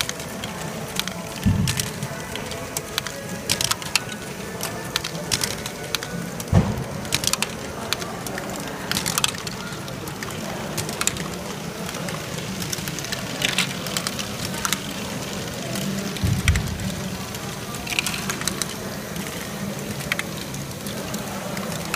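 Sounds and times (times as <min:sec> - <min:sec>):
plastic balls clicking and clattering: 0:00.0 - 0:21.9.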